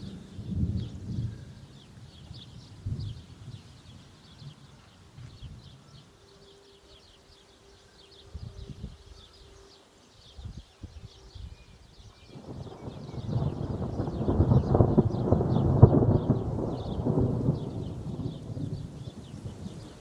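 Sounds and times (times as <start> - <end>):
thunder rumbling: 0.0 - 4.7, 12.3 - 20.0
small birds chirping: 0.0 - 20.0.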